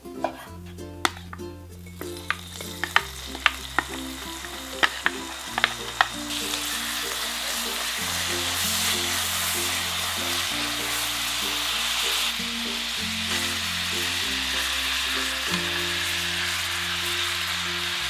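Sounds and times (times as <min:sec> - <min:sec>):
oil popping and crackling: 0:01.0 - 0:18.0
wooden spoon stirring: 0:02.0 - 0:12.3
food frying in hot oil: 0:02.2 - 0:18.0.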